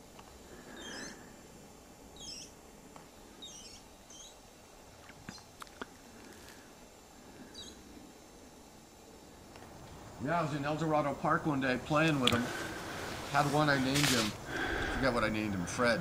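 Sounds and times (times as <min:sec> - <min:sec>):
faint steady hiss: 0:00.0 - 0:16.0
small animal chirping: 0:03.4 - 0:04.4
sharp clicks: 0:12.0 - 0:12.5.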